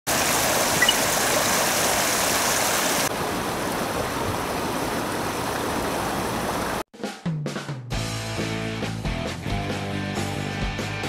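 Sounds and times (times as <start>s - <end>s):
softer flowing water: 0.1s - 6.8s
water rushing over a weir: 0.1s - 6.8s.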